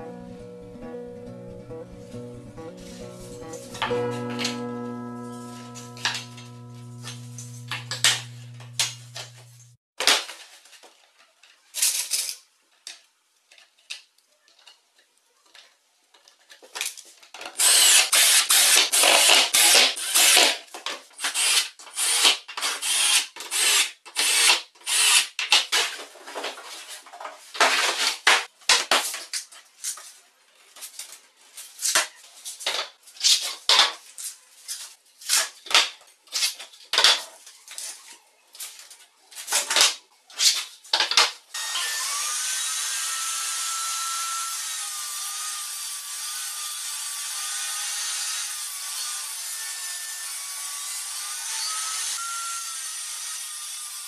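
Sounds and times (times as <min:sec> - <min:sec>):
table saw cutting plywood: 0:02.7 - 0:09.8, 0:17.6 - 0:20.6, 0:41.6 - 0:54.0.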